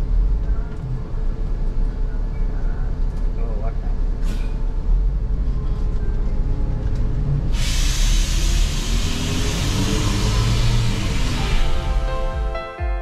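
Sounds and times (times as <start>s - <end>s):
bus engine rumbling: 0.0s - 12.6s
loud steady hiss: 7.5s - 12.5s.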